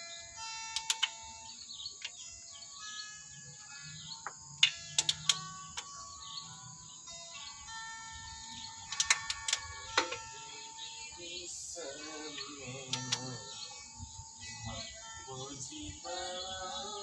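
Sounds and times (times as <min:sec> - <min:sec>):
birds chirping: 0:00.0 - 0:17.0
faint music: 0:00.0 - 0:17.0
socket wrench clicking: 0:04.2 - 0:05.9, 0:08.9 - 0:10.2.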